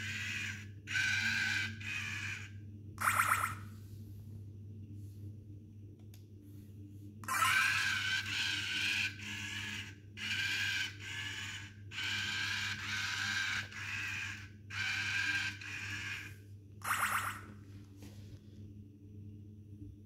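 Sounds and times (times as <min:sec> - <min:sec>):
small robot motors whirring: 0:07.3 - 0:16.3.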